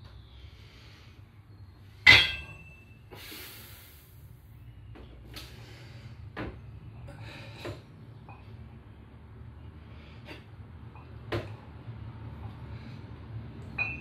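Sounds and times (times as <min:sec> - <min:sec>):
barbell clanking: 0:02.0 - 0:02.8.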